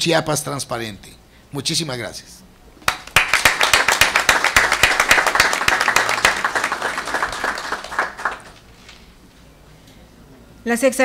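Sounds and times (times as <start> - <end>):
small group clapping: 2.8 - 9.0.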